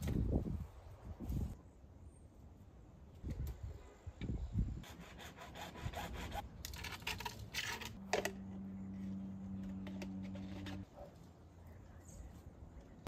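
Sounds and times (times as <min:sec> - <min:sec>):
plastic pipe scraping: 0:09.5 - 0:10.9.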